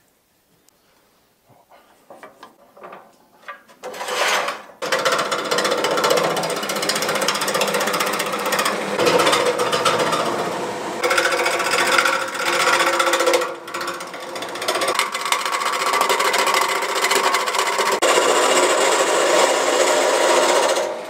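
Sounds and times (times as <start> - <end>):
lathe gouge chattering on log: 4.8 - 20.9.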